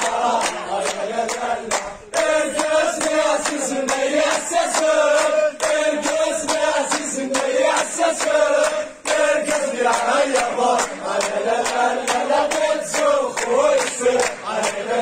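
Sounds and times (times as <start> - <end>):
crowd of men chanting: 0.0 - 15.0
rhythmic clapping: 0.0 - 15.0.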